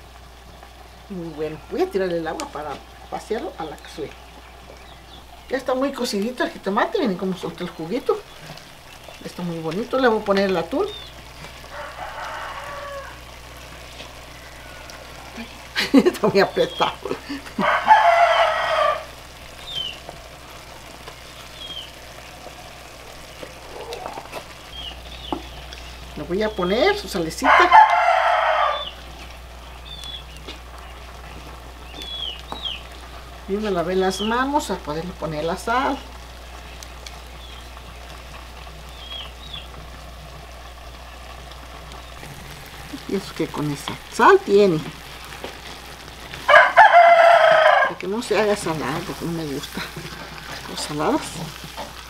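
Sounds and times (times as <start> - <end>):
food sizzling in a clay pot: 0.0 - 52.0
small bird chirping: 3.0 - 5.6, 10.7 - 11.2, 19.5 - 20.1, 21.0 - 22.0, 23.3 - 26.9, 28.6 - 33.0, 35.8 - 38.1, 38.9 - 39.8.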